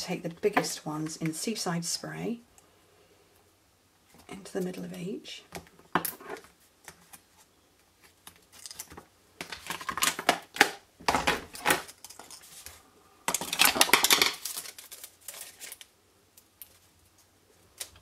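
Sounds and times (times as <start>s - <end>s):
paper rustling: 13.7s - 15.9s.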